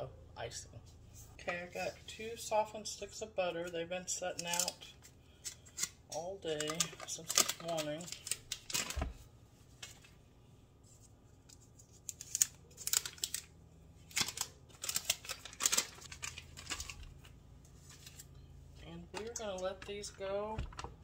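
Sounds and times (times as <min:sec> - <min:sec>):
paper wrappers rustling and tearing: 0:04.4 - 0:09.2, 0:10.9 - 0:18.3.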